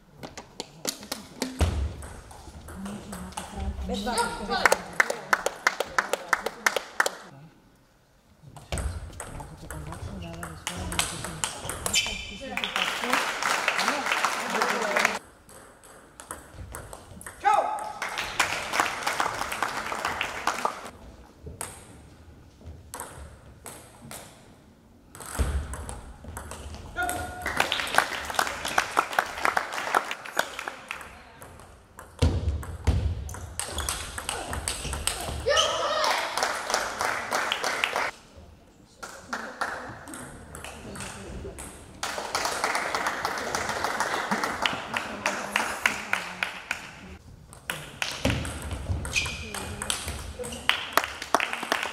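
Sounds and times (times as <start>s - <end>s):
crowd applauding: 4.6s - 7.3s, 12.6s - 15.2s, 17.9s - 20.9s, 27.4s - 31.0s, 36.0s - 38.2s, 42.0s - 46.6s, 50.7s - 51.9s.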